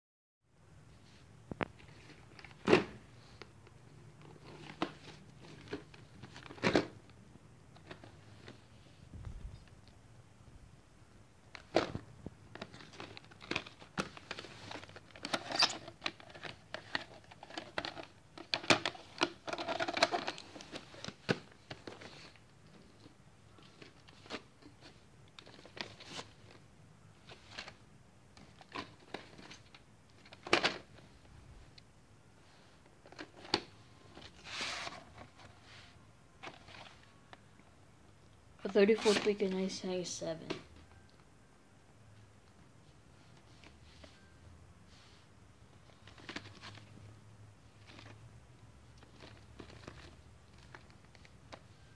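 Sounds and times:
plastic tape cases clicking: 11.5 - 22.1
cardboard sleeves rustling: 32.4 - 37.2, 38.7 - 39.7.

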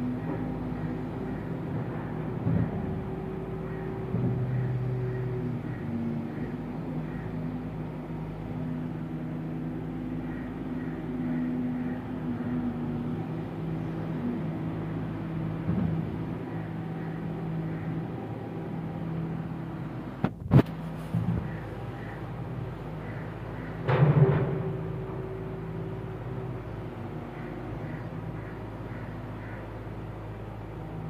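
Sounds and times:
excavator diesel engine under load: 0.0 - 31.0.

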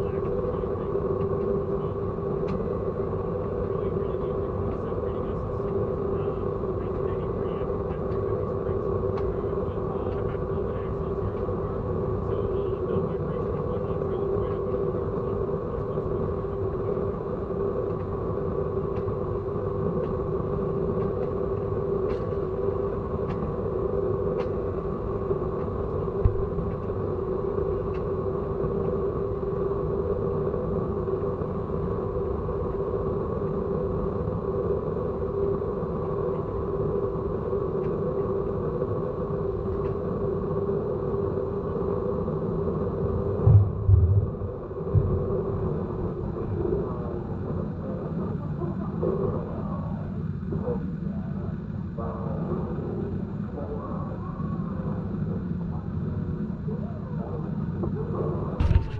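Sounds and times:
vehicle rumble with drone: 26.1 - 27.1, 43.0 - 47.0, 58.6 - 58.9
heavy thumps: 43.5 - 45.3.

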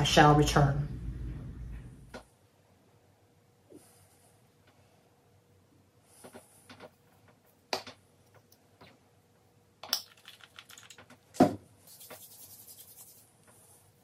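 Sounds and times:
palms rubbing together: 11.9 - 13.8.

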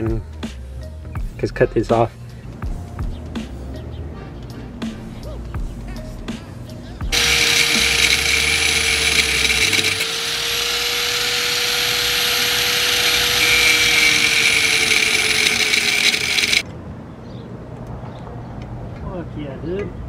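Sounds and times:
angle grinder grinding metal: 7.1 - 16.6.

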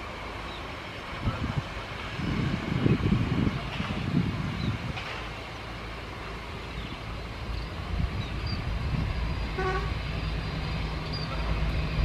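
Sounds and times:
vehicles passing with engine rumble: 0.0 - 12.0
vehicle horn toot: 9.6 - 10.0.

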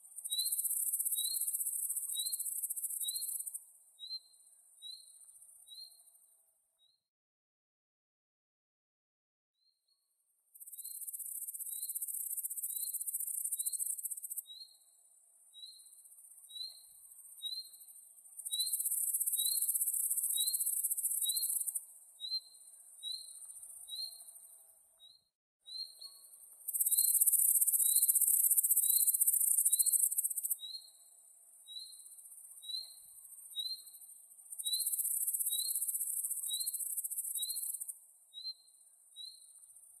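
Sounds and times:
crickets chirping: 0.2 - 3.6, 10.6 - 14.9, 15.6 - 24.6, 26.3 - 40.0.

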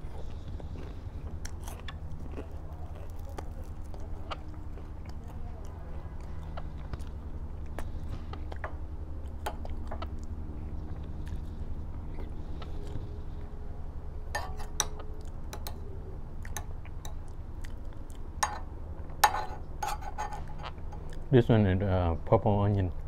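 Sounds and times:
person chewing: 0.0 - 13.5, 14.4 - 19.2, 20.2 - 21.3
steady low rumble: 0.0 - 19.8.

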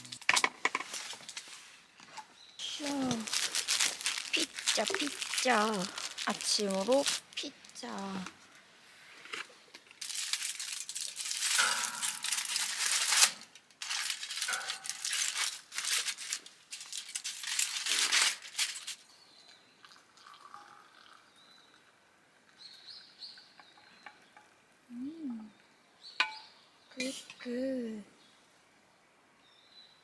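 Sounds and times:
aluminium foil crinkling: 2.6 - 8.3, 9.2 - 19.1.

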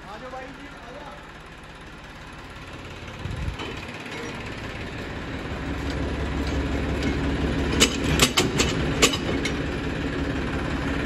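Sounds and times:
tractor diesel engine idling: 0.0 - 11.0
sharp metal clanks: 6.4 - 9.6.

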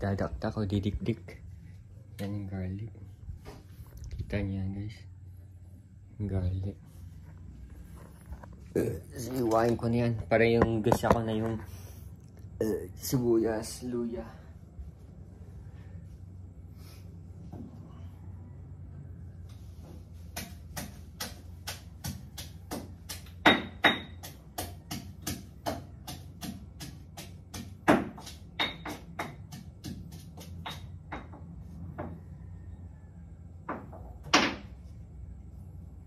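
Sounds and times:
knife chopping on cutting board: 20.3 - 31.4.

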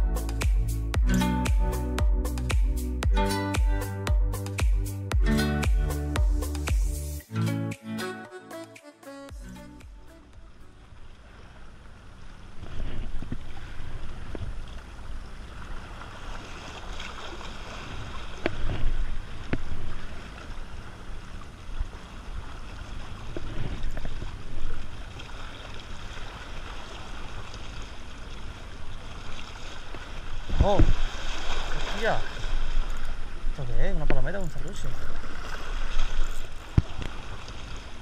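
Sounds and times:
wind rumbling on microphone: 10.4 - 16.0, 17.8 - 25.3, 30.0 - 38.0
sea washing: 10.4 - 38.0.

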